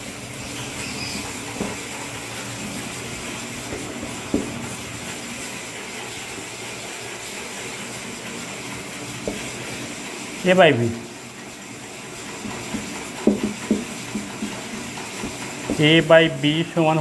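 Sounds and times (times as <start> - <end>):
marker tapping on whiteboard: 13.2 - 14.3.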